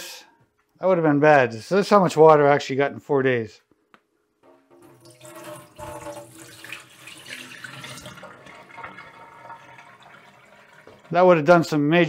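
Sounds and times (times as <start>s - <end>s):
water splashing into steel sink: 4.4s - 11.2s.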